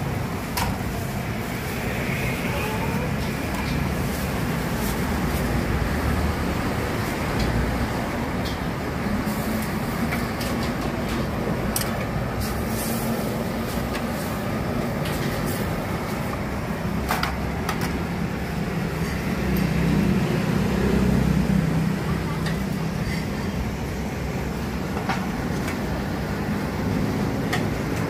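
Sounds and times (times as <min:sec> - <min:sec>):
gas burner roaring: 0:00.0 - 0:28.0.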